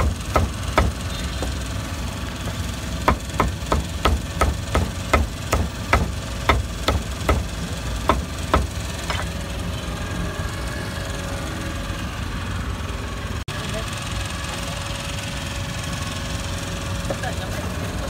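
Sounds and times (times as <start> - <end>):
cleaver chopping meat: 0.0 - 1.6, 3.1 - 7.5.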